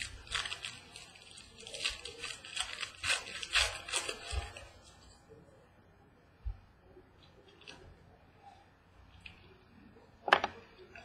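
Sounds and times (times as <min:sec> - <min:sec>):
foil wrappers crinkling and tearing: 0:00.0 - 0:05.2.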